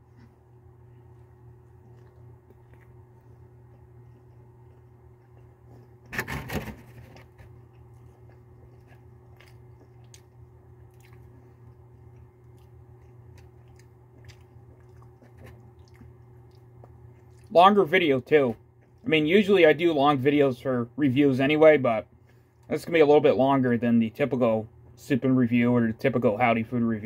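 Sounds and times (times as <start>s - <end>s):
steady low hum: 0.0s - 27.0s
wet chewing clicks: 1.0s - 6.1s, 7.5s - 17.6s.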